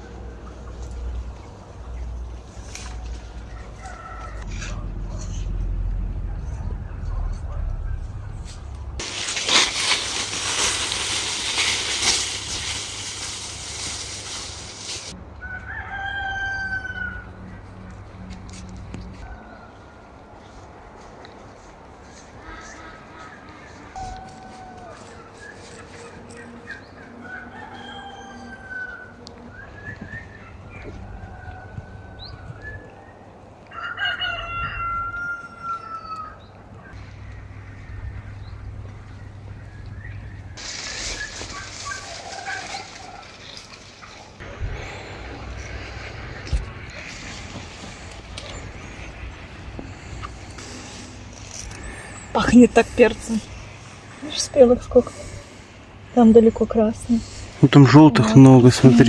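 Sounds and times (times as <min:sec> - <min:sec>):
rooster crowing: 0:03.4 - 0:04.5, 0:15.4 - 0:17.4, 0:24.0 - 0:25.5, 0:27.1 - 0:29.4, 0:30.8 - 0:32.7, 0:33.7 - 0:36.5, 0:41.8 - 0:43.6
loud rough crackling noise: 0:07.4 - 0:15.2, 0:40.6 - 0:52.2.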